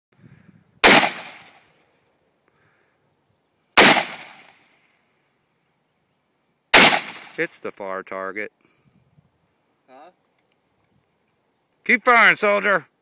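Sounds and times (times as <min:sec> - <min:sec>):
rifle shots: 0:00.8 - 0:01.6, 0:03.8 - 0:04.5, 0:06.7 - 0:07.4.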